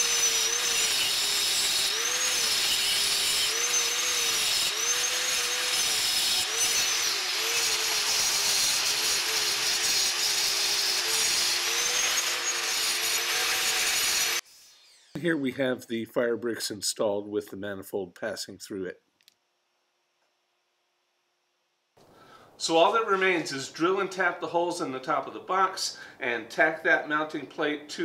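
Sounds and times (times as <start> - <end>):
angle grinder cutting brick: 0.0 - 15.3.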